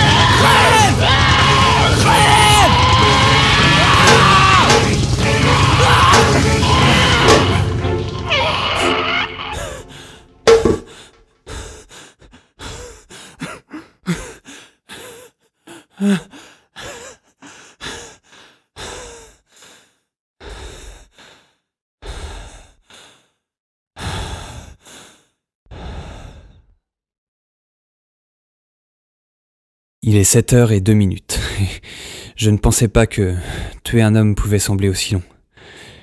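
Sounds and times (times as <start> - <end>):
man panting and gasping: 9.6 - 26.8, 31.4 - 32.4, 33.4 - 33.8, 35.5 - 36.0.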